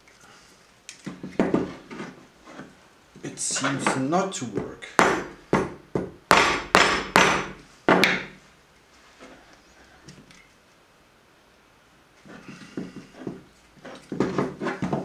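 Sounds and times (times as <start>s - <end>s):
rubber mallet knocking plastic: 4.6s - 8.3s.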